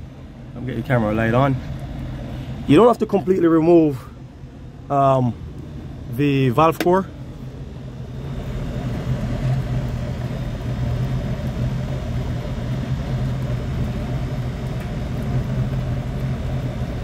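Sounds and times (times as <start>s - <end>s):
air conditioning unit humming: 0.0s - 17.0s.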